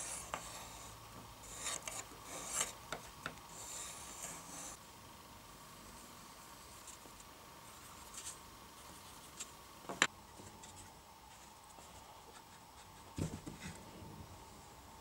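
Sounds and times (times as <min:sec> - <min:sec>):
pencil scratching on board: 0:00.0 - 0:02.8.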